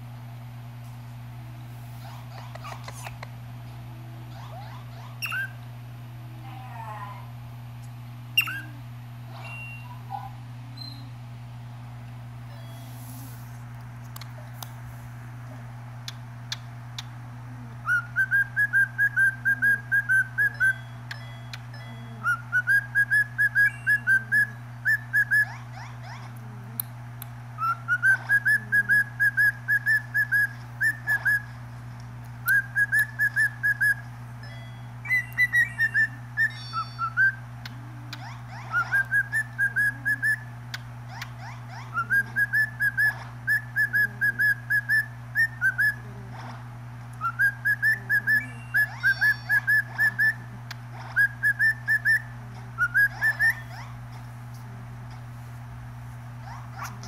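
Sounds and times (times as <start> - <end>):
cockatiel whistling: 5.2 - 5.6, 8.4 - 8.7, 17.8 - 20.9, 22.2 - 25.6, 27.6 - 31.5, 32.4 - 34.0, 35.1 - 37.4, 38.1 - 40.5, 41.2 - 46.0, 47.2 - 50.4, 51.1 - 53.9.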